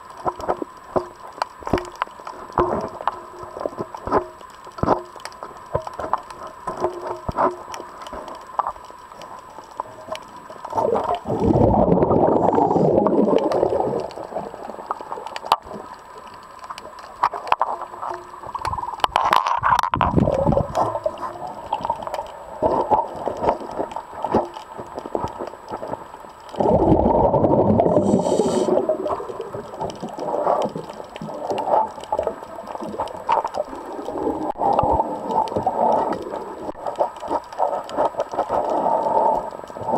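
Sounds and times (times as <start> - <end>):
underwater breath bubbling: 10.7 - 15.0, 26.5 - 32.4, 33.6 - 39.9.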